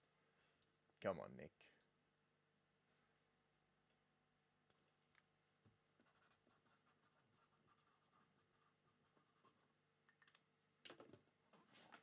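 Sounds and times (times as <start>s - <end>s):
pen scratching on paper: 6.0s - 9.7s.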